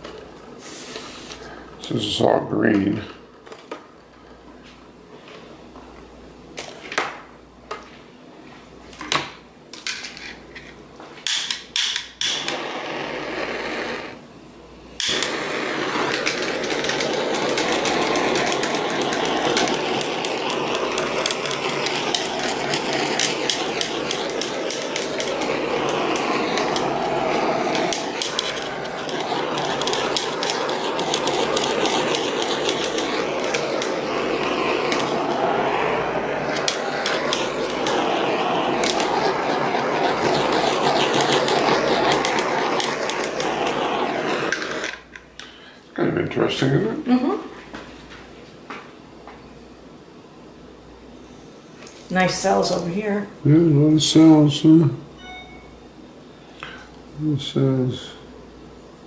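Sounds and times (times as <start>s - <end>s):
hair dryer blowing: 12.4s - 14.2s, 15.0s - 44.9s.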